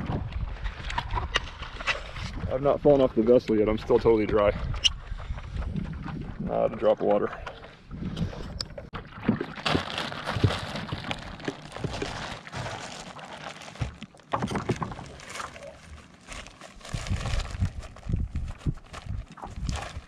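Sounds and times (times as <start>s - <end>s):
wind rumbling on microphone: 0.0s - 9.0s, 16.8s - 20.0s
water splashing against board: 8.9s - 13.2s.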